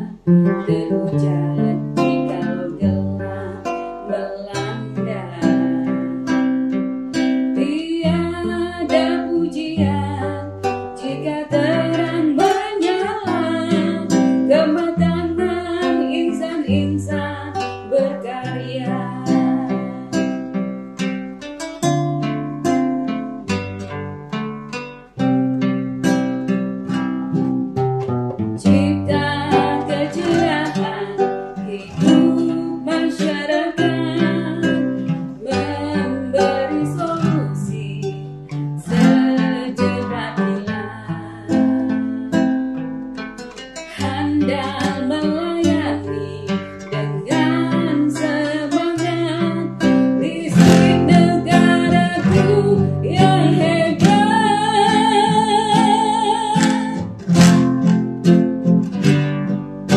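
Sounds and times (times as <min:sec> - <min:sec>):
woman singing: 0:00.0 - 0:06.4, 0:07.5 - 0:20.6, 0:28.6 - 0:42.6, 0:43.8 - 0:58.0
acoustic guitar plucked and strummed: 0:00.0 - 0:59.9.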